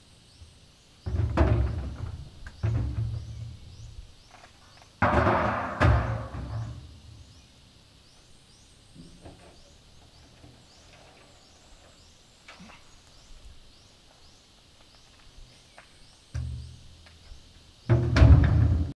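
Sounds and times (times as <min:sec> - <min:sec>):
loud hollow bangs with boom: 0:05.0 - 0:06.8, 0:17.9 - 0:18.9.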